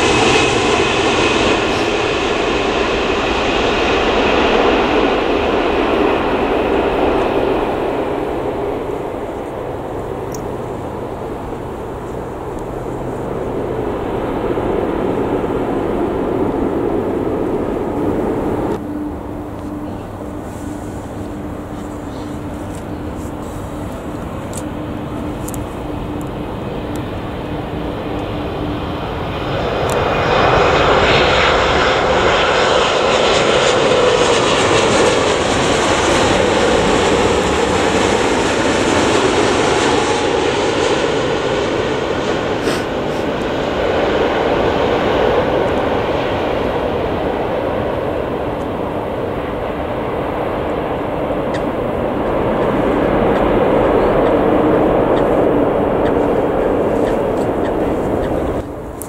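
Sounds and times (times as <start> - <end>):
jet airliner engine roar: 0.0 - 59.0.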